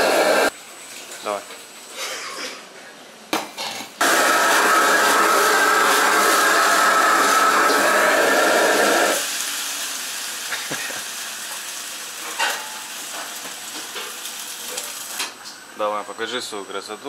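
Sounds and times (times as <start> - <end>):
kitchen background: 0.0 - 15.7
food sizzling in a wok: 4.0 - 15.4.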